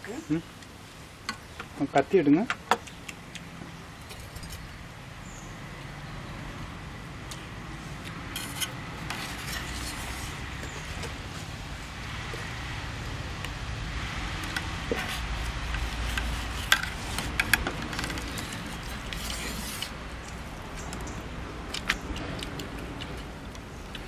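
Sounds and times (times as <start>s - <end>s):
knife scraping a steel plate: 8.3s - 10.8s, 14.9s - 20.0s.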